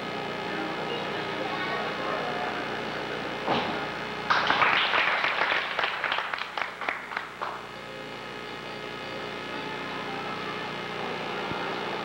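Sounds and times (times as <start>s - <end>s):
gymnast landing thump: 3.5s - 3.8s
small group clapping: 4.3s - 7.7s.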